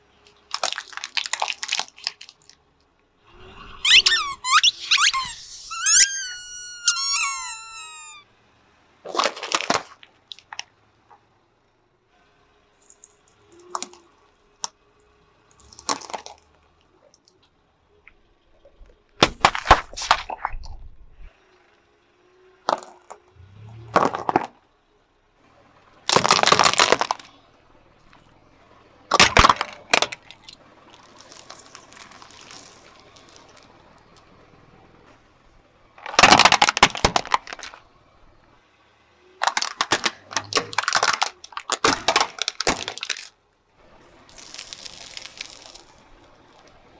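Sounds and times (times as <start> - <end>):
plastic toys snapping: 0.5 - 2.6, 26.1 - 27.3, 29.1 - 33.7, 36.0 - 37.8, 39.4 - 43.4.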